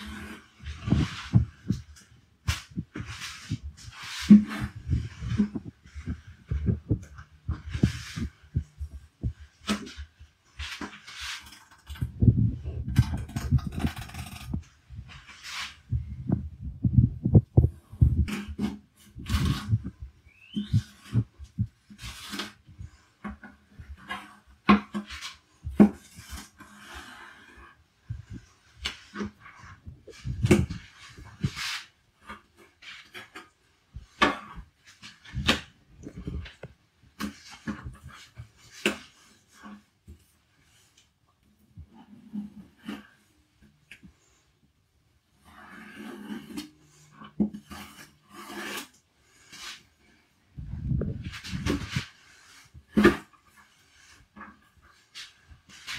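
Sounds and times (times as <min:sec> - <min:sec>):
knife slicing and scraping fish: 0:09.6 - 0:12.1, 0:18.2 - 0:21.3, 0:21.9 - 0:27.8, 0:45.4 - 0:50.1
scrapes on cutting board: 0:45.4 - 0:49.9.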